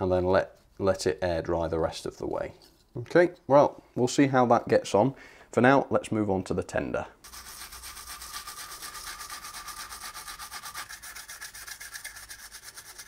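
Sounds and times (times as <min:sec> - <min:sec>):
toothbrush scrubbing: 0:07.2 - 0:13.0.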